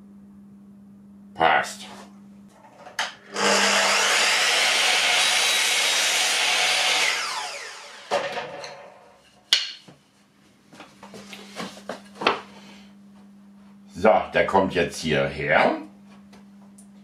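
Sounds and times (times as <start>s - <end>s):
mitre saw cutting wood: 3.3s - 8.9s
saw blade spinning down: 3.3s - 9.0s.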